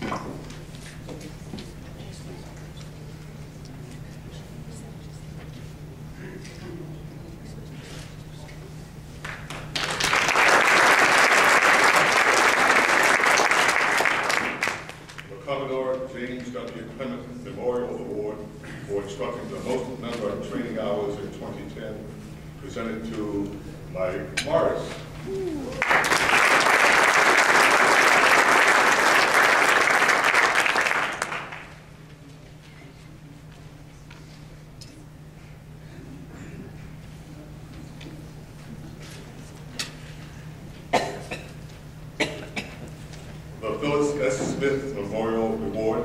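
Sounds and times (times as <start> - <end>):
audience applauding: 9.2 - 15.3, 25.6 - 31.8.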